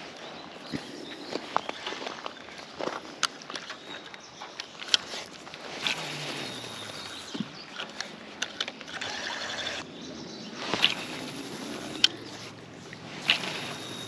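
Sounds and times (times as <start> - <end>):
fishing reel clicks and knocks: 10.8 - 12.3, 13.2 - 14.0.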